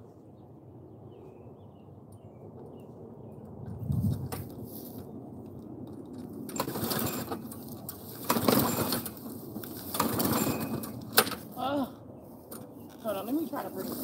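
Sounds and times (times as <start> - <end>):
lawn mower pull-start cranking: 6.5 - 11.4.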